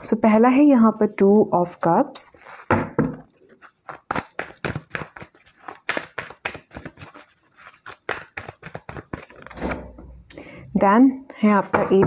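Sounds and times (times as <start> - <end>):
cards being shuffled: 3.3 - 9.6.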